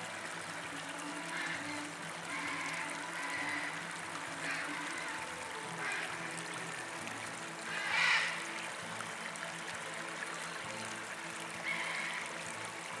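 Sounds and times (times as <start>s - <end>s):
stream trickling: 0.0s - 13.0s
bird splashing in water: 1.1s - 6.9s.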